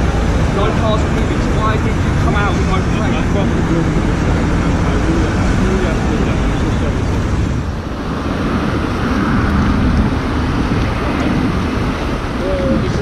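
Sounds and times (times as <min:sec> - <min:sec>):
road traffic: 0:00.0 - 0:13.0
wind rumble on microphone: 0:00.0 - 0:13.0.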